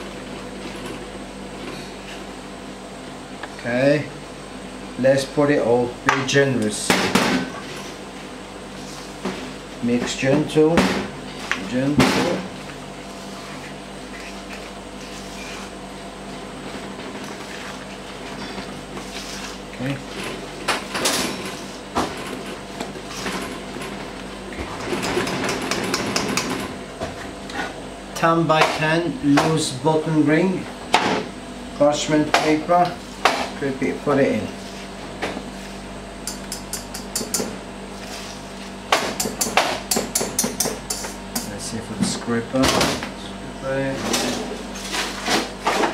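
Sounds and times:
steady low hum: 0.0s - 45.9s
scraper scraping a metal bowl: 13.2s - 15.7s.

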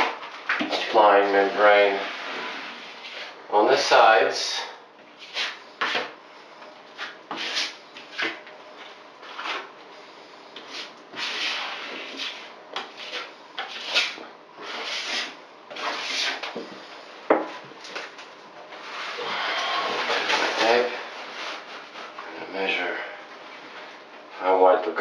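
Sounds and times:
brush rubbing and scraping board: 1.1s - 3.4s, 5.2s - 6.2s, 6.9s - 9.7s, 10.6s - 16.9s, 18.7s - 22.2s.

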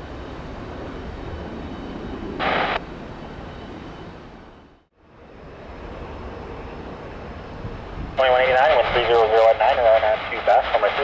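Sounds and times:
aircraft engine noise: 0.0s - 11.0s
radio static burst: 2.4s - 2.8s, 8.2s - 11.0s.

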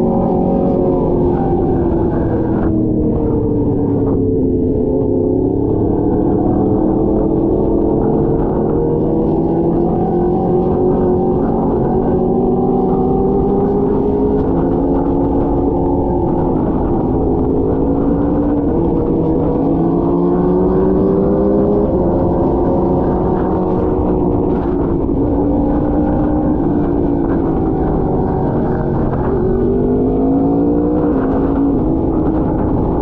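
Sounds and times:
low wind rumble: 0.0s - 33.0s
motorcycle engine cruising: 0.0s - 33.0s.

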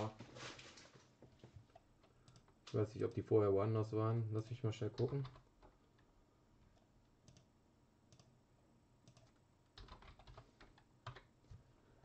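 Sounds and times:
typing on computer keyboard: 9.1s - 11.3s.

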